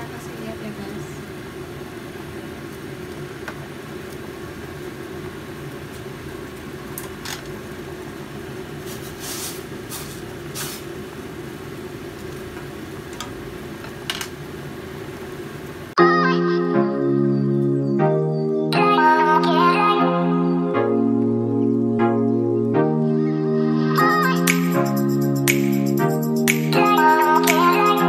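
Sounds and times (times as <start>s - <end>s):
water boiling: 0.2s - 15.9s
gas burner rushing: 6.9s - 15.4s.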